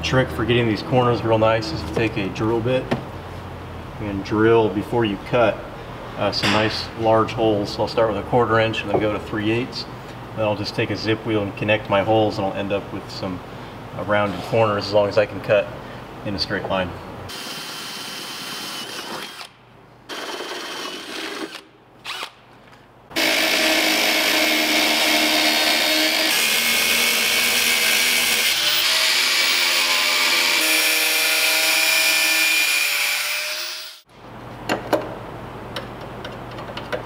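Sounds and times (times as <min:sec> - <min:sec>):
cordless drill boring metal: 0:17.3 - 0:19.5, 0:20.1 - 0:22.3, 0:23.2 - 0:34.0.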